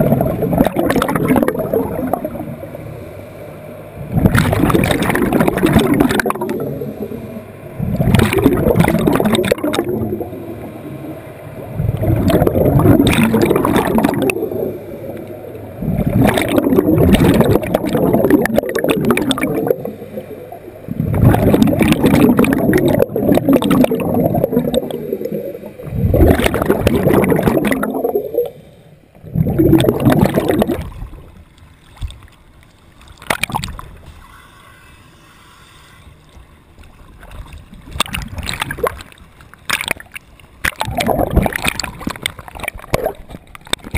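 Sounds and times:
breath bubbling underwater: 0:00.0 - 0:02.5, 0:04.1 - 0:07.2, 0:07.8 - 0:10.3, 0:11.8 - 0:14.8, 0:15.8 - 0:28.6, 0:29.2 - 0:31.0, 0:40.6 - 0:43.3.

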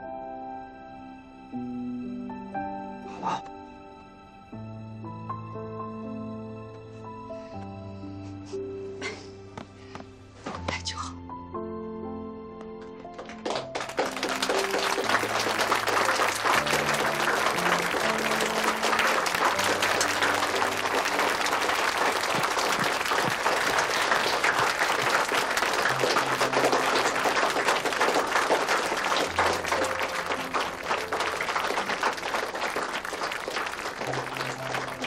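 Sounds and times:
soft low background music: 0:00.0 - 0:35.0
people applauding: 0:12.8 - 0:35.0.

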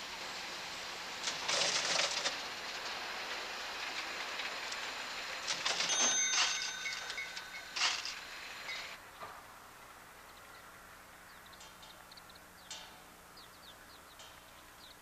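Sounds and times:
cash drawer springing open: 0:05.5 - 0:07.1, 0:07.8 - 0:08.2
cash register keys clattering: 0:05.5 - 0:08.2
cash register bell ringing: 0:05.5 - 0:09.0.

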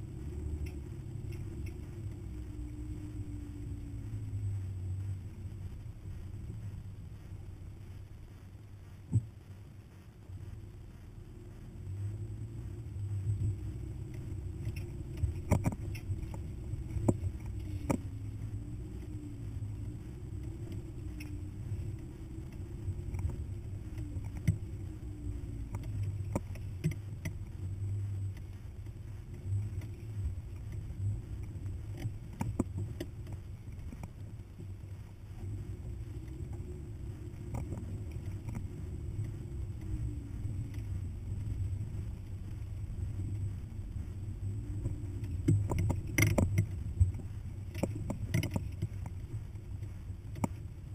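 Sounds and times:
truck engine and road rumble: 0:00.0 - 0:50.9.

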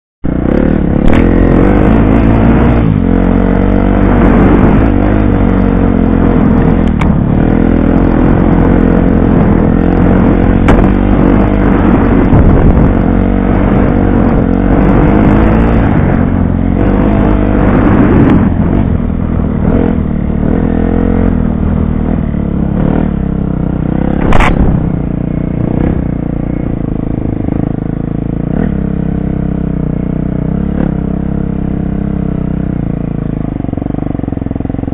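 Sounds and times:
dirt bike engine revving: 0:00.2 - 0:34.9
sharp knock: 0:24.2 - 0:24.9.

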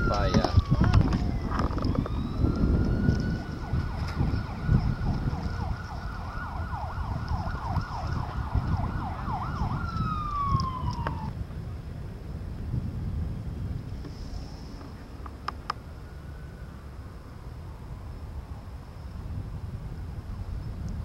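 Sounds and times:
siren-like warbling tone: 0:00.0 - 0:11.3
low wind rumble: 0:00.0 - 0:21.0.

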